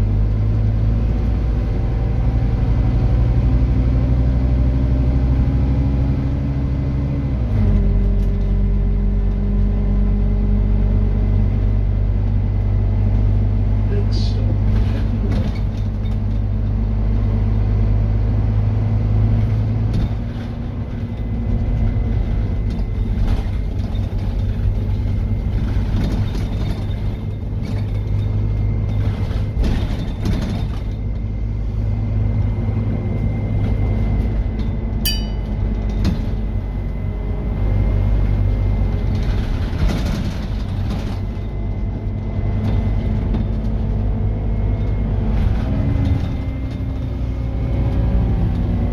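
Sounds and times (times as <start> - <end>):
bus diesel engine drone: 0.0 - 48.9
short high ping: 35.1 - 35.6.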